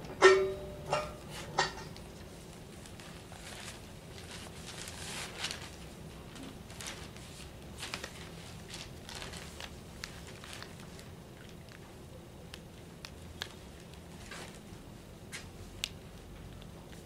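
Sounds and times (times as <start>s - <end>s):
newspaper rustling: 2.2s - 11.8s.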